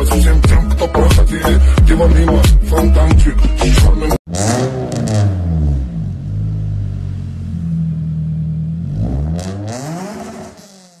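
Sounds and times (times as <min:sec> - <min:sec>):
motorcycle engine revving: 0:04.3 - 0:11.0.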